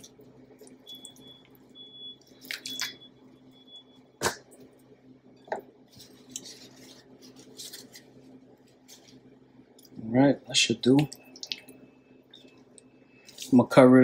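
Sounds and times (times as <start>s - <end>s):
wet squishes and plops: 0.0s - 3.1s, 10.9s - 13.5s.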